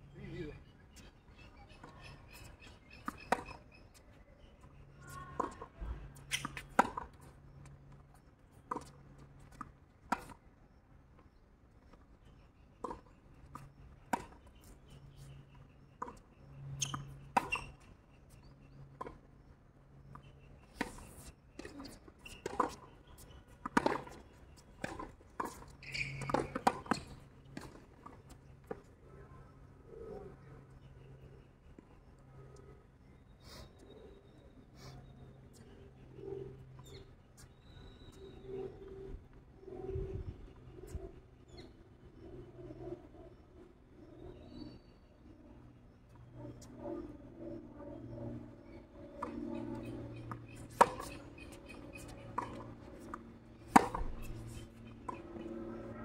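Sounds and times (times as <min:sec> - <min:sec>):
tennis ball bouncing: 0:22.4 - 0:24.2, 0:24.8 - 0:28.1, 0:49.2 - 0:55.7
racket striking tennis ball: 0:53.6 - 0:54.3.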